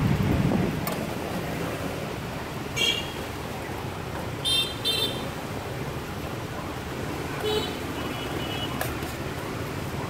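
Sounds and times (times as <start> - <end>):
street traffic: 0.0 - 10.0
vehicle horn beep: 2.8 - 3.2, 4.4 - 5.2, 7.4 - 8.8.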